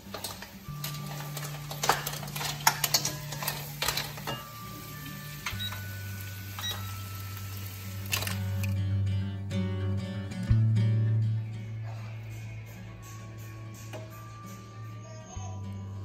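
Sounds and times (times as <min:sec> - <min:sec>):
kitchen utensils clattering: 0:00.0 - 0:07.3
guitar music: 0:00.0 - 0:16.0.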